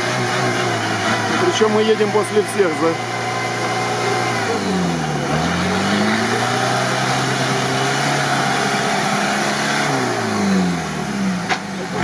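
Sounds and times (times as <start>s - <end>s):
off-road vehicle engine under load: 0.0s - 12.0s
tyres churning through mud: 0.0s - 12.0s.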